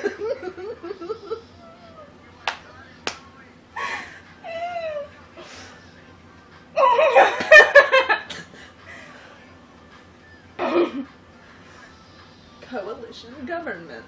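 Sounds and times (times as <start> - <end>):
women giggling and laughing: 0.0 - 1.7, 6.8 - 8.8
woman squealing: 6.8 - 7.2.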